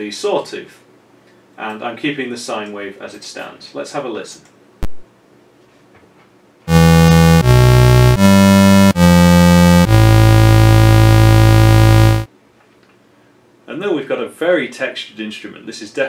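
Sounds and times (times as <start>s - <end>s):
synthesizer notes: 6.7s - 12.3s.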